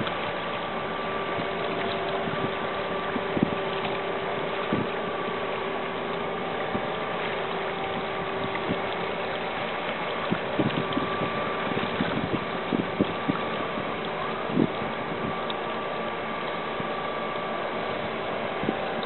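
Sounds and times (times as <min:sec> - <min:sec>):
ship engine drone: 0:00.0 - 0:19.0.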